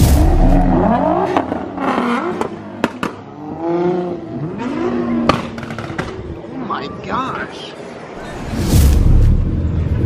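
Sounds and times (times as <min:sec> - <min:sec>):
car engine revving: 0:00.0 - 0:05.7.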